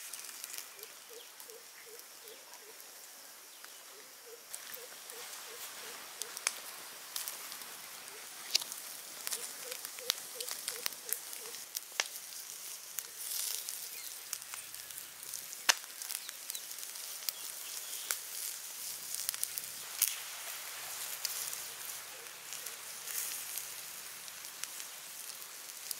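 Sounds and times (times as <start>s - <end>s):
steady hiss: 0.0s - 25.9s
wood fire crackling: 0.0s - 25.9s
sharp pops: 15.6s - 16.3s.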